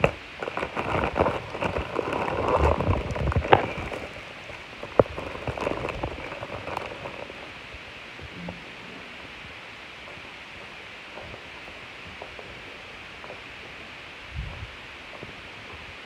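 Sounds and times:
plastic mailer crinkling: 0.0 - 7.6.

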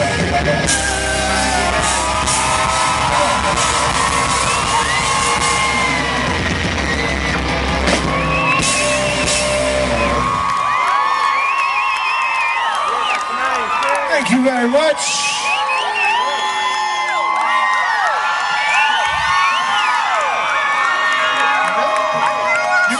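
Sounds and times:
live rock band playing: 0.0 - 10.5
fans screaming: 0.0 - 22.9.

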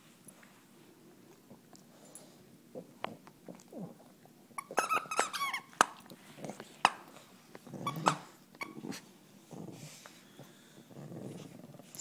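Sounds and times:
squeaky dog toy: 4.6 - 5.7, 7.8 - 8.8.

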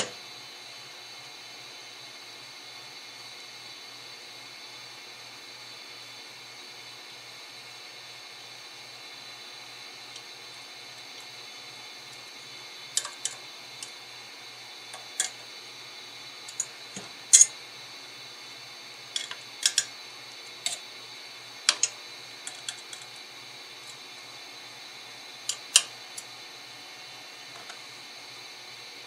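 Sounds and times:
clicks and taps of small hard parts: 21.7 - 23.1.

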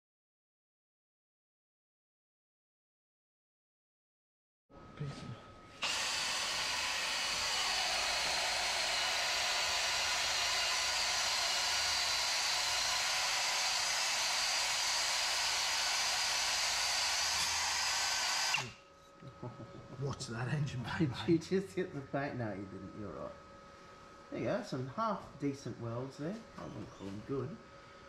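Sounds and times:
power tool running: 5.7 - 18.8.

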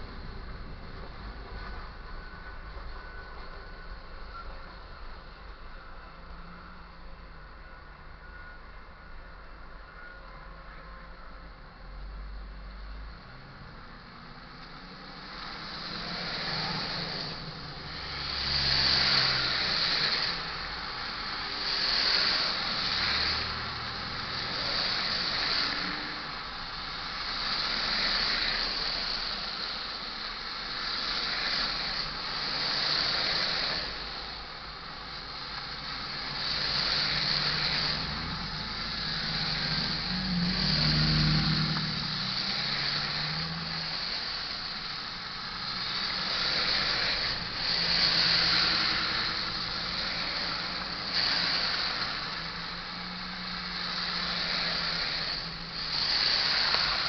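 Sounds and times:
tyres hissing through wet slush: 14.7 - 57.0.

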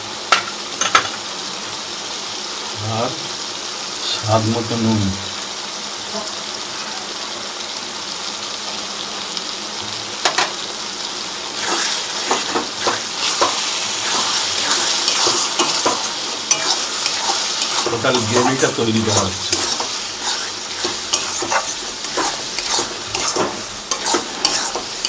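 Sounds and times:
spices sizzling in a wok: 0.0 - 25.0
spatula scraping a pan: 11.6 - 25.0.

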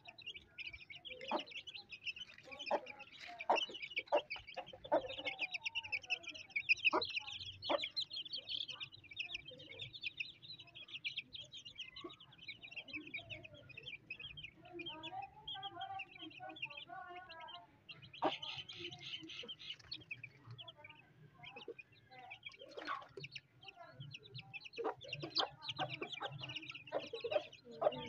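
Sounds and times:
hen clucking: 0.0 - 8.5, 17.2 - 20.7, 21.4 - 23.6, 24.2 - 28.0
chicks peeping: 0.0 - 28.0.

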